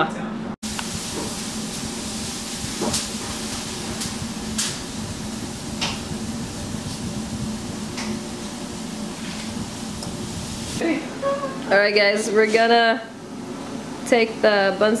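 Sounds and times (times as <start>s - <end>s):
oven fan humming: 0.1s - 15.0s
filling sizzling: 0.6s - 10.8s.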